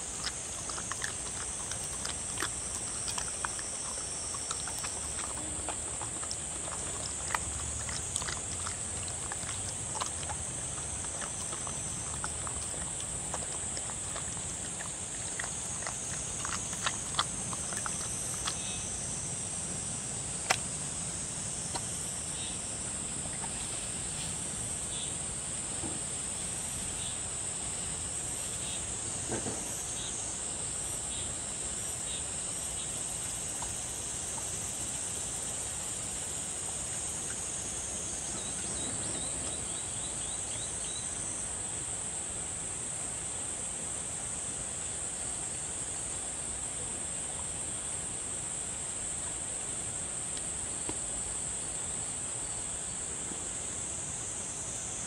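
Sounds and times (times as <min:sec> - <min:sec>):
faint clicks from dog eating: 0:00.0 - 0:18.8, 0:20.4 - 0:20.8, 0:21.6 - 0:22.0, 0:50.3 - 0:51.2
high-pitched insect chorus: 0:00.0 - 0:55.0.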